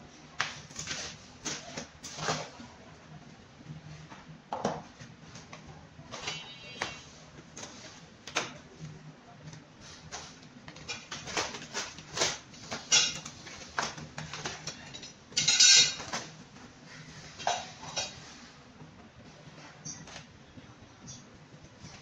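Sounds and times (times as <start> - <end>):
foam packing wrap rustling: 0.6 - 2.6, 10.0 - 14.9.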